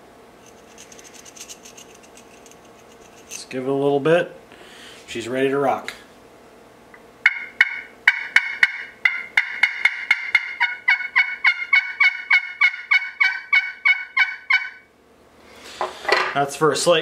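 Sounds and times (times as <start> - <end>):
turkey call yelps: 7.2 - 14.9.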